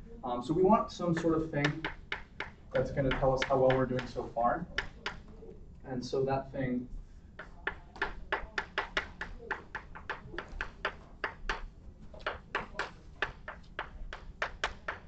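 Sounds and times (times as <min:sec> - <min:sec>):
chalk tapping on blackboard: 0:01.2 - 0:05.4, 0:07.3 - 0:15.0.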